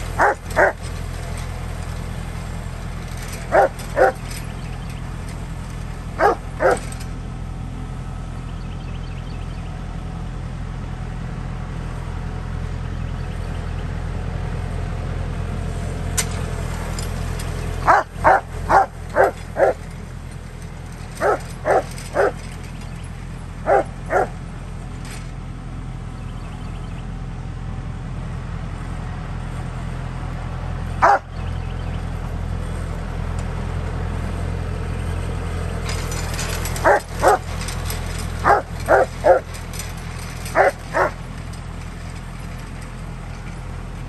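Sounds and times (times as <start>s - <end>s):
tractor engine droning: 0.0s - 44.0s
dog barking: 0.2s - 0.8s, 3.5s - 4.2s, 6.2s - 6.9s, 17.8s - 19.8s, 21.2s - 22.4s, 23.7s - 24.4s, 31.0s - 31.3s, 36.8s - 37.4s, 38.4s - 39.5s, 40.5s - 41.2s.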